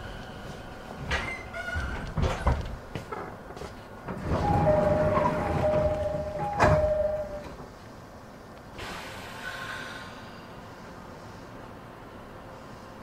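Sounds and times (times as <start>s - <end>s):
sliding doors shutting: 4.0s - 7.7s
two-tone door chime: 4.4s - 7.5s.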